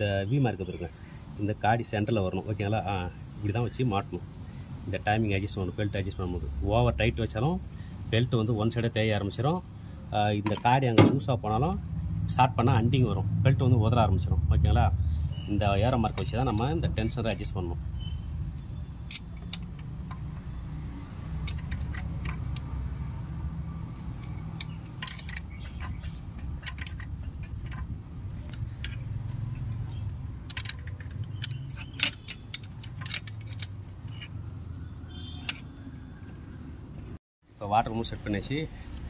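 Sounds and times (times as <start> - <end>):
metal hand tools clinking: 15.9 - 17.6, 23.9 - 34.4.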